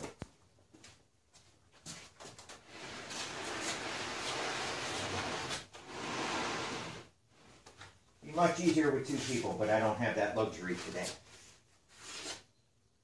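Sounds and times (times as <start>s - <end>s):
wooden panel scraping: 2.6s - 7.1s.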